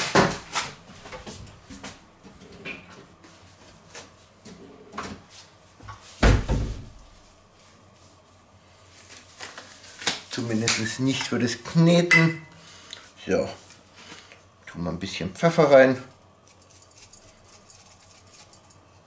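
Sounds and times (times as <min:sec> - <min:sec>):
cabinet door thump: 0:06.2 - 0:06.9.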